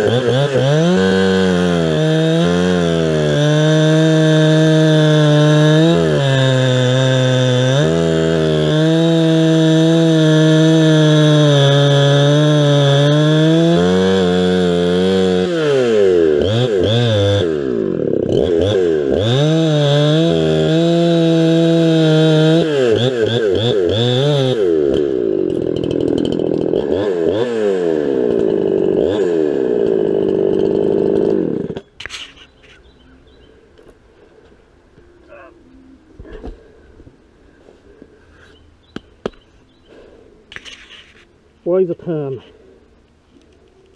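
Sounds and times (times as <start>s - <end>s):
chainsaw cutting wood: 0.0s - 34.5s, 38.0s - 41.3s.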